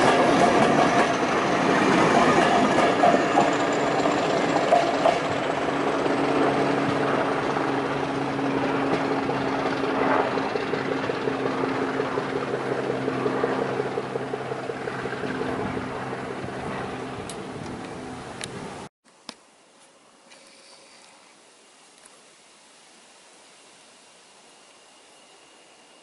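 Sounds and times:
wheels clacking over rail joints: 0:00.0 - 0:05.5
diesel locomotive engine drone: 0:00.0 - 0:18.9.

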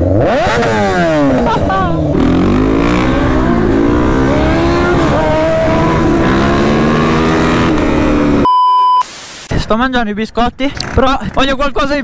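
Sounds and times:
motorcycle engine revving: 0:00.0 - 0:08.5.

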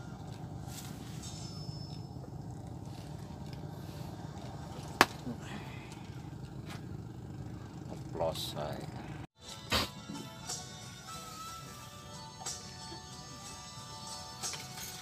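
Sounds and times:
low motor drone: 0:00.0 - 0:09.3.

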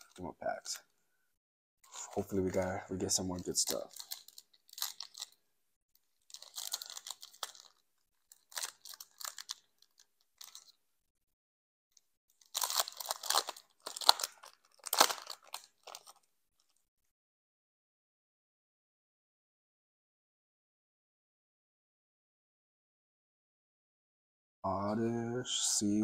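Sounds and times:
foil wrapper crinkling and tearing: 0:01.9 - 0:05.4, 0:06.2 - 0:10.8, 0:12.4 - 0:16.8.

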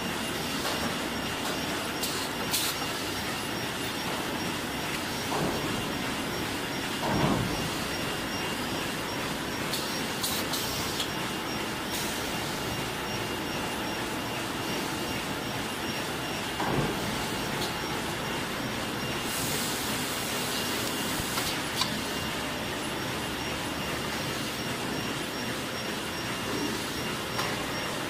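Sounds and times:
machine mechanical clatter: 0:00.6 - 0:12.4.

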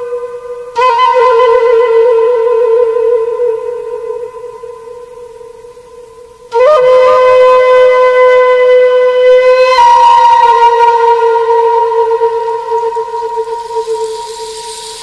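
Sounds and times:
wind instrument long notes: 0:00.0 - 0:05.2, 0:06.5 - 0:15.0
quiet sustained tone: 0:11.3 - 0:15.0.

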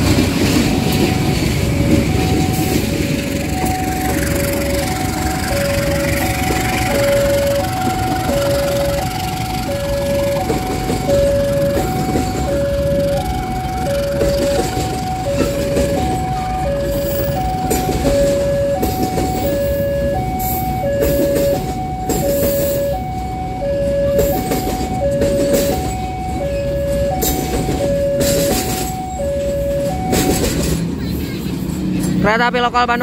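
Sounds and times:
level crossing alarm: 0:00.0 - 0:31.3
train coaches rumbling and clattering: 0:00.0 - 0:33.0.

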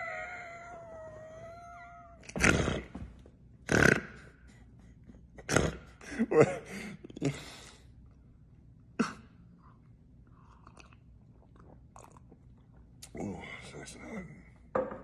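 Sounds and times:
man laughing: 0:06.0 - 0:07.4.

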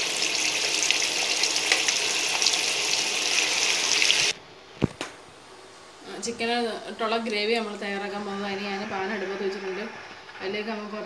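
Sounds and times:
chicken deep-frying in oil: 0:00.0 - 0:04.4.

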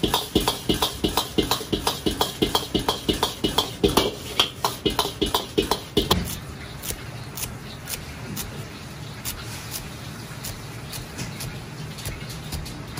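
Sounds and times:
ladle clanking against wok: 0:00.0 - 0:06.2.

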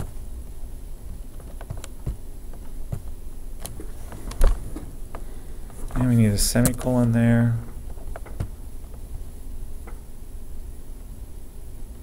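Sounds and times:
low room hum: 0:00.0 - 0:12.0
keyboard and mouse clicks: 0:01.1 - 0:04.9.

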